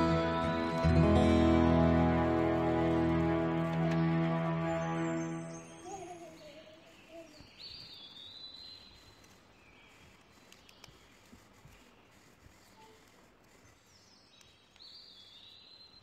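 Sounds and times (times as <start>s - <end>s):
background music: 0.0s - 5.8s.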